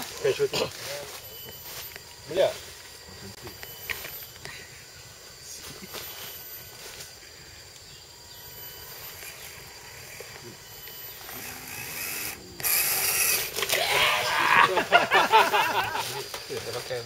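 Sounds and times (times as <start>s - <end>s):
tyres scraping over bark and leaves: 0.0s - 4.4s, 8.7s - 17.0s
small electric motor whine: 6.0s - 13.8s.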